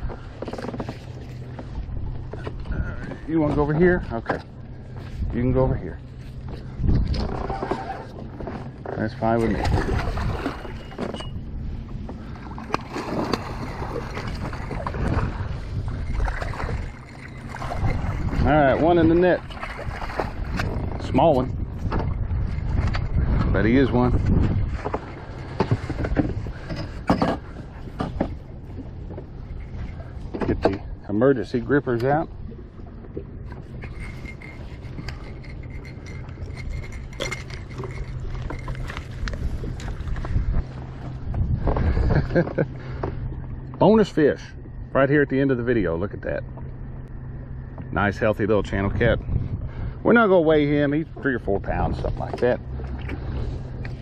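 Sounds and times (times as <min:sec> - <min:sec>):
steady low hum: 0:00.0 - 0:54.0
wind rumbling on microphone: 0:00.0 - 0:54.0
metal clicks and clinks: 0:33.8 - 0:39.4.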